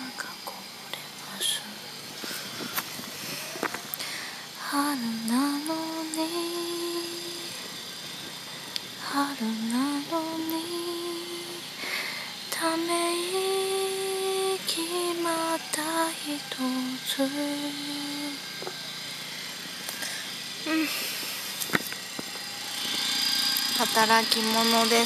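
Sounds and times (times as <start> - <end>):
woman singing softly: 0.0 - 1.9, 4.6 - 7.6, 9.0 - 11.8, 12.4 - 18.5.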